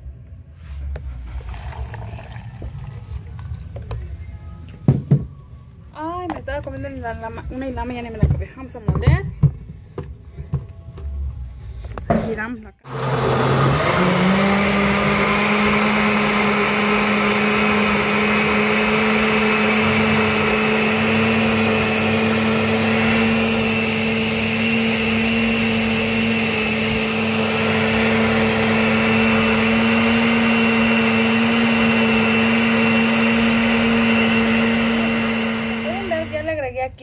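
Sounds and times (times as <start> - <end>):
blender motor hum and whine: 12.9 - 36.5.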